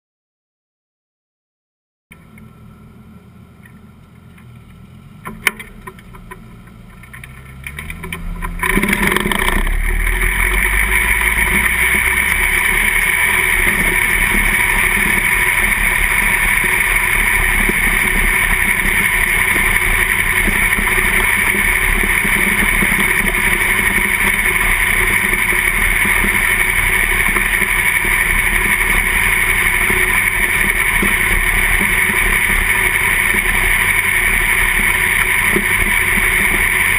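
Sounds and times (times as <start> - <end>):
low hum: 2.1 - 36.9
race car engine roaring: 2.1 - 36.9.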